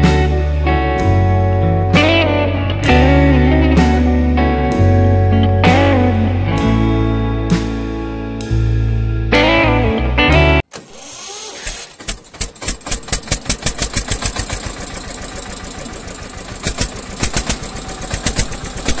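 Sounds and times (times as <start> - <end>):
tractor diesel engine chugging: 12.2 - 19.0.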